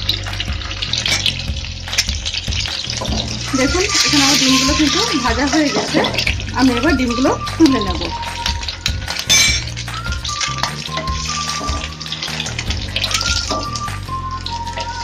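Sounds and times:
background music with bass line: 0:00.0 - 0:15.0
hot oil sizzling in a frying pan: 0:00.0 - 0:15.0.

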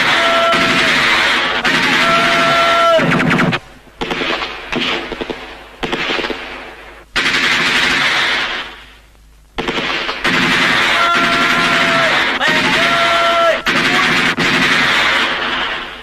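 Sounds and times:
machine gun firing in bursts: 0:00.0 - 0:08.9, 0:09.6 - 0:16.0.

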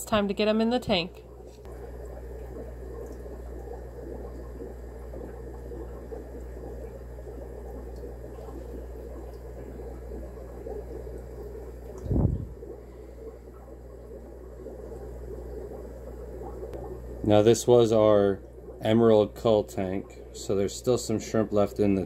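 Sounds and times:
aquarium water bubbling: 0:00.0 - 0:22.0
low hum: 0:00.0 - 0:22.0
dull low thump: 0:12.0 - 0:12.6.

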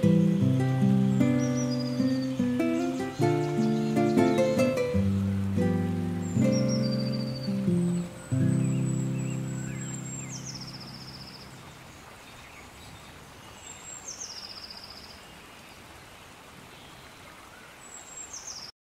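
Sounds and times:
bird whistle and buzzy trill: 0:00.0 - 0:04.8, 0:06.1 - 0:11.4
sustained music chord: 0:00.0 - 0:11.5
natural background hiss: 0:00.0 - 0:18.7.

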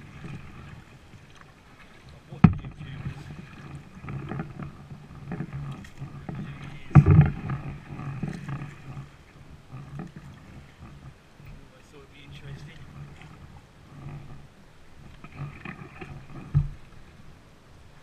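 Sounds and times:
reeds scraping kayak hull: 0:00.0 - 0:18.0.

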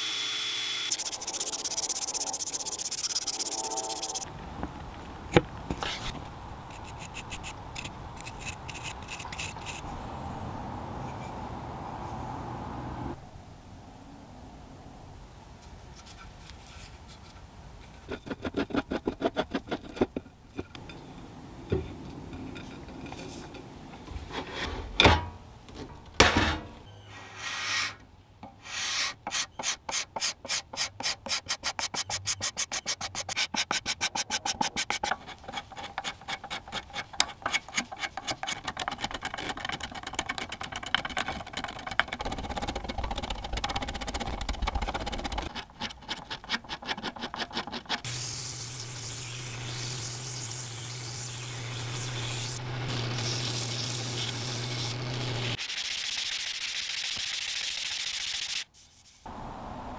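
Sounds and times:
sanding wood rasping strokes: 0:00.9 - 0:04.3, 0:28.6 - 0:39.7, 0:46.2 - 0:57.2.

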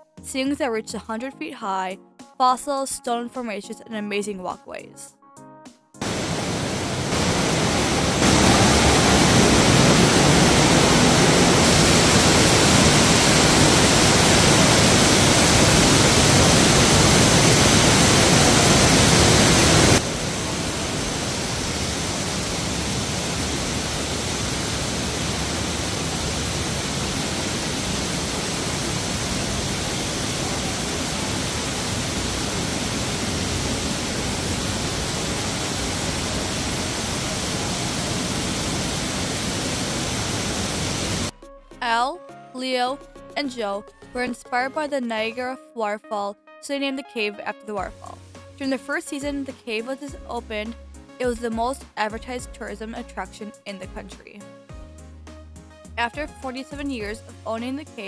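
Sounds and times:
underground waterfall rushing: 0:06.0 - 0:41.3.

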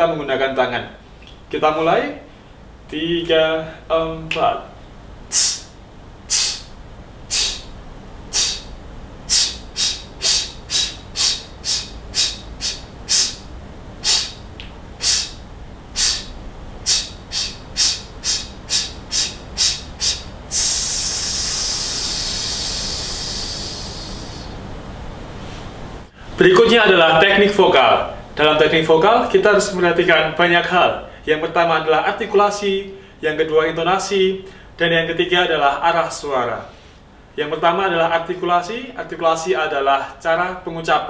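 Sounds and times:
man hissing breaths: 0:05.3 - 0:24.6.

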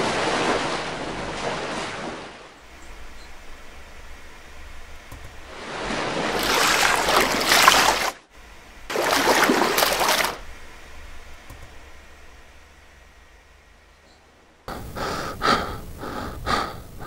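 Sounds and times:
rushing surf-like water: 0:00.0 - 0:10.5.

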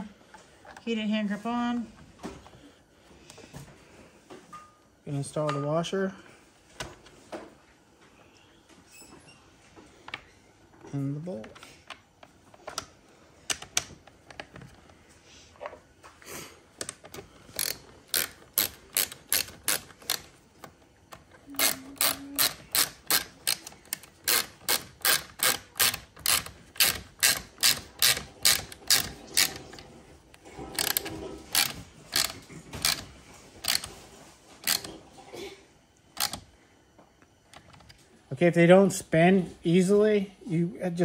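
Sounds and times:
ratchet pawl clicking: 0:17.5 - 0:20.2, 0:21.6 - 0:29.6, 0:30.8 - 0:33.9, 0:34.6 - 0:34.9.

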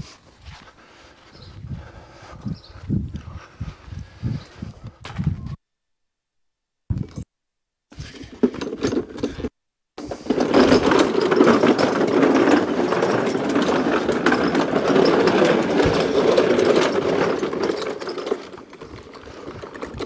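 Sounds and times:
machine rattling: 0:08.4 - 0:20.0.

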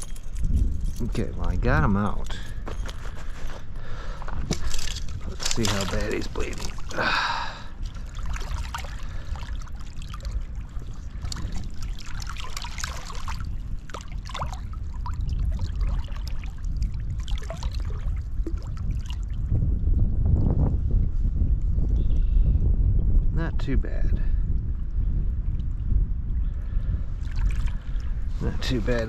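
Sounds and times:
wind rumble on microphone: 0:00.0 - 0:29.0
stream water trickling and splashing: 0:04.2 - 0:19.5, 0:27.2 - 0:29.0.

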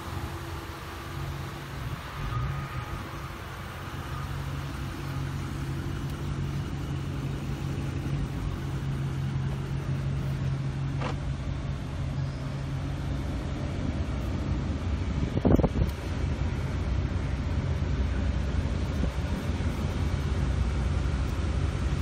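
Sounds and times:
vehicle engine idling: 0:00.0 - 0:22.0.

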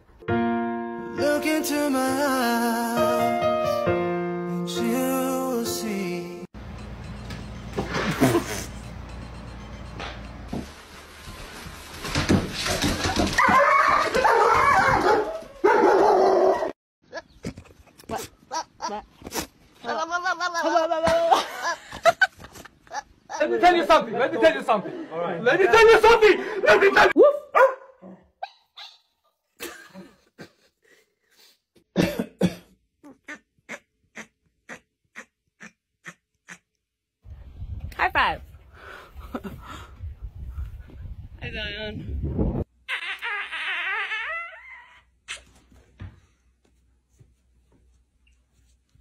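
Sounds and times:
knocks and scuffles: 0:09.8 - 0:15.4, 0:45.4 - 0:49.0
dog barking: 0:13.4 - 0:16.7, 0:27.3 - 0:29.0
dog whining and yelping: 0:28.4 - 0:29.1.

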